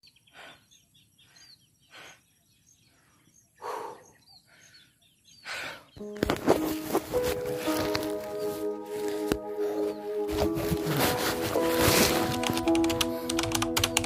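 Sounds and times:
small birds chirping: 0:00.0 - 0:11.6
music: 0:06.0 - 0:14.0.

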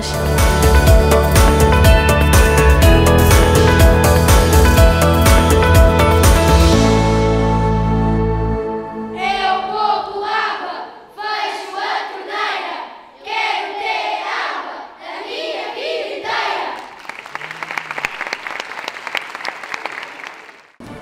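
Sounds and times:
audience applause: 0:16.8 - 0:20.8.

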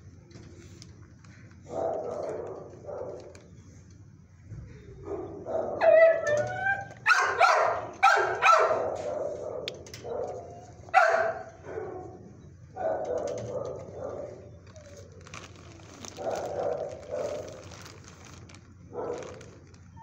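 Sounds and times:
dog barking and yelping: 0:05.1 - 0:12.2, 0:12.8 - 0:15.0
dog whining: 0:05.6 - 0:09.4.

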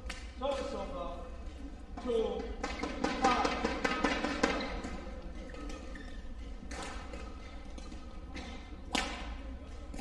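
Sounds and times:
sports hall background: 0:00.0 - 0:10.0
racket striking shuttlecock: 0:06.6 - 0:08.1, 0:08.9 - 0:09.3.

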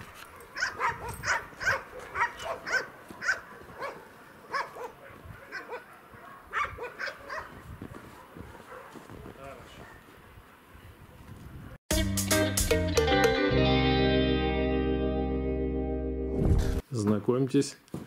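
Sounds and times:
dog barking: 0:00.3 - 0:10.7.

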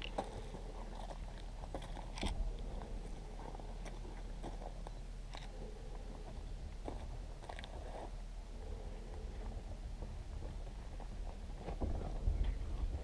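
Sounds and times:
footsteps crunching on dry dirt: 0:00.0 - 0:08.3
steady low rumble: 0:00.0 - 0:13.0.

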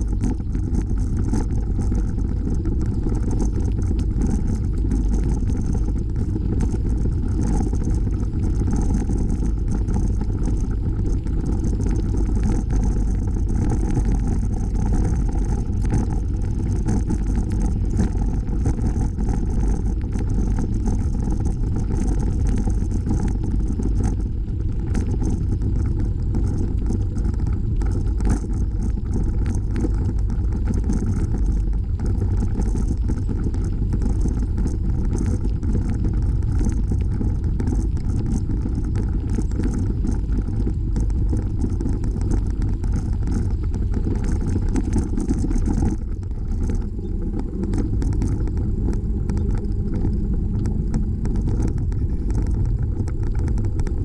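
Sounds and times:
bicycle tyres rolling over trail: 0:00.0 - 0:54.0
wind buffeting microphone: 0:45.2 - 0:54.0.

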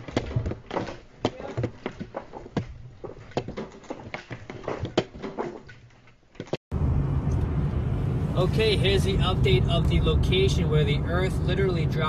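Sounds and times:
car engine and road noise: 0:06.7 - 0:12.0.

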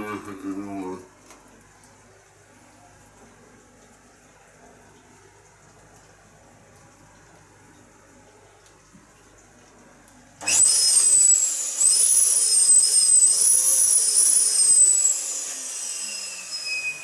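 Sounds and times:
high wavering whistle: 0:10.5 - 0:17.0.

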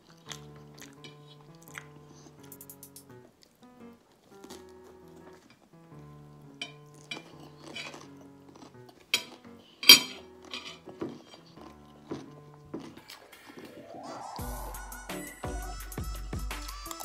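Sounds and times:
cutlery clinking on a ceramic plate: 0:06.6 - 0:11.5.

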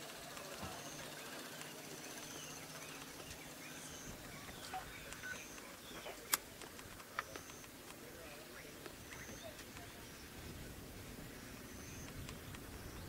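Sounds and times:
birds whistling and chirping: 0:00.3 - 0:06.5, 0:07.1 - 0:13.0
sharp click: 0:05.0 - 0:08.0.

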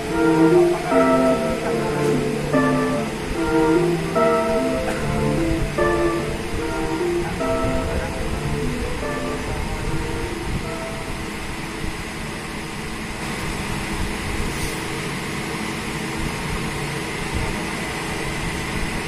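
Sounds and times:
faint high whine: 0:00.0 - 0:19.0.

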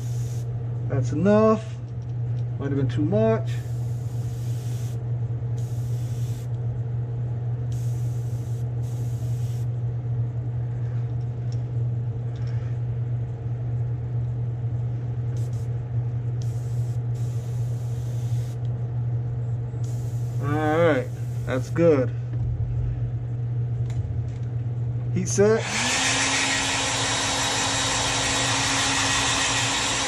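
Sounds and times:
airbrush hissing bursts: 0:00.0 - 0:00.5, 0:03.6 - 0:05.0, 0:05.6 - 0:06.5, 0:07.7 - 0:09.7, 0:15.4 - 0:15.7, 0:16.4 - 0:18.6, 0:19.8 - 0:21.7
low machine hum: 0:00.0 - 0:30.0.

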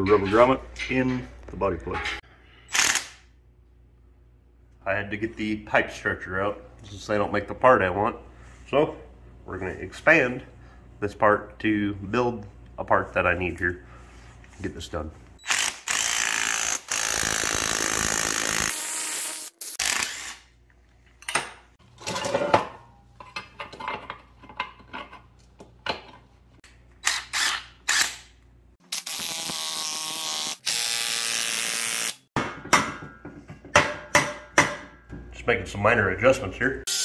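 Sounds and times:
power tool running: 0:15.4 - 0:20.4, 0:28.9 - 0:32.2
metal clanks and taps: 0:21.2 - 0:26.3.

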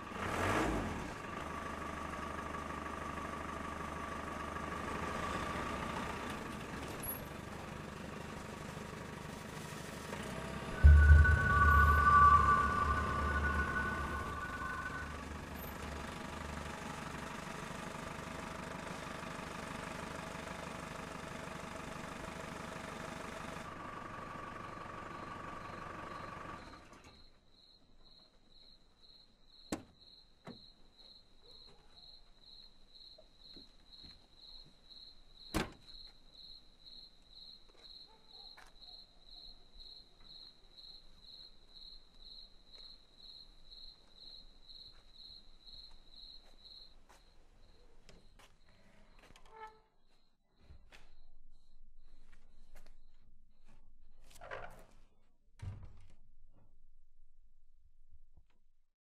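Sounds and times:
crickets chirping: 0:38.8 - 0:48.7.

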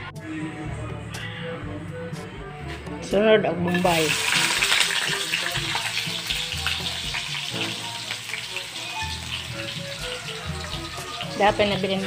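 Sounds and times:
onion sizzling in hot oil: 0:03.7 - 0:12.0.

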